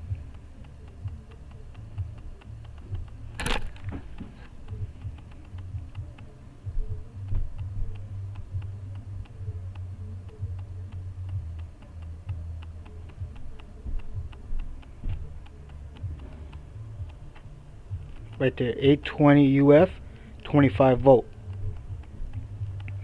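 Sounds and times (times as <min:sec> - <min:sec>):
faint steady ticking: 0:00.0 - 0:23.0
sharp click: 0:00.3 - 0:23.0.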